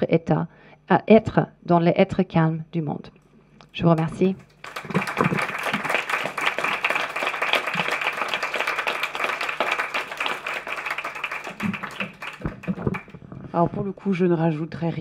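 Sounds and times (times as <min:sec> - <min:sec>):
audience applauding: 0:04.0 - 0:13.2.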